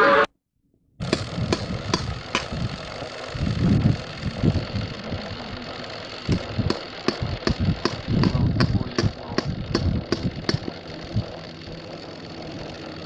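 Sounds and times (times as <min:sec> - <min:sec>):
motor running: 0:01.0 - 0:13.0
sharp mechanical clicks: 0:01.0 - 0:13.0
low thumps: 0:06.3 - 0:10.7.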